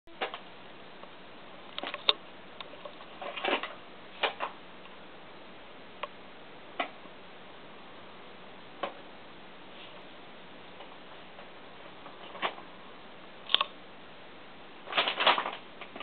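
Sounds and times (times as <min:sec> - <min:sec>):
paper bag crinkling: 0:14.9 - 0:16.0.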